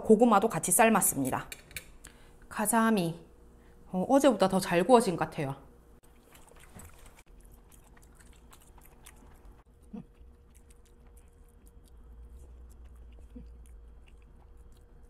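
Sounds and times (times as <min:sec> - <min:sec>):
faint steady hum: 0:00.0 - 0:15.0
person chewing soft food: 0:06.0 - 0:15.0.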